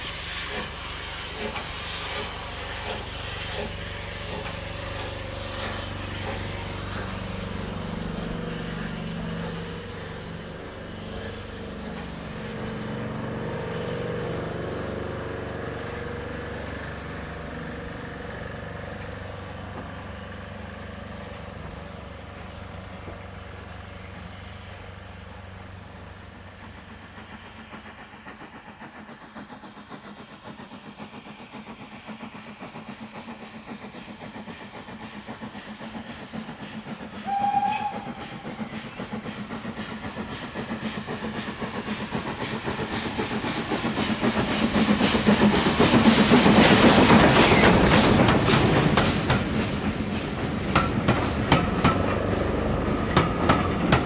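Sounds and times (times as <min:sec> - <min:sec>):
steam locomotive exhaust beats: 0:00.0 - 0:54.0
train pulling away: 0:00.0 - 0:54.0
locomotive whistle blast: 0:37.2 - 0:38.3.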